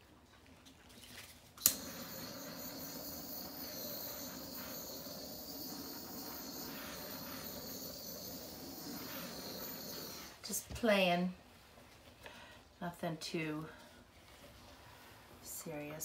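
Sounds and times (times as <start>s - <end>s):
torch igniting click: 1.6s - 10.3s
torch flame hissing: 1.6s - 10.4s.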